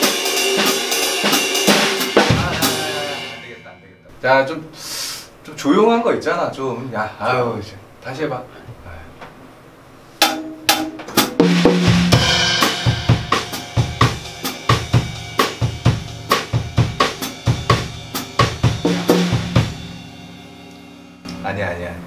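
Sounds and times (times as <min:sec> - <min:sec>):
acoustic drum kit played hard: 0:00.0 - 0:04.0, 0:10.2 - 0:22.0.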